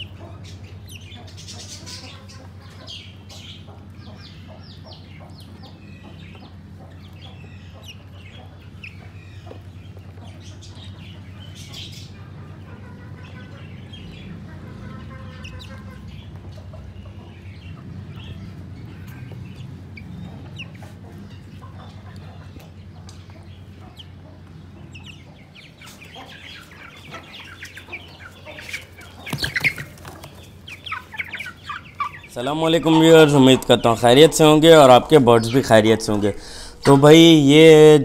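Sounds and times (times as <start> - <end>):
chicks peeping: 0.0 - 38.0
steady low hum: 30.5 - 38.0.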